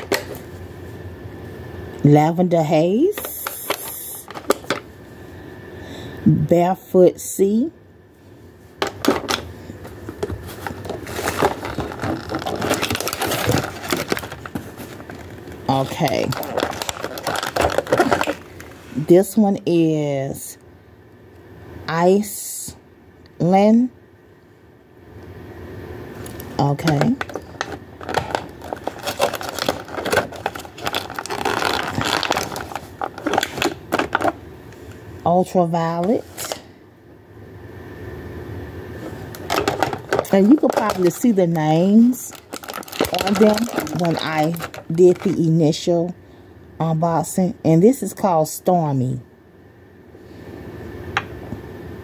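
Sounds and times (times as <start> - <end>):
bottles clicking and rustling: 10.0 - 18.6, 26.8 - 34.4, 39.4 - 41.4, 42.3 - 45.4.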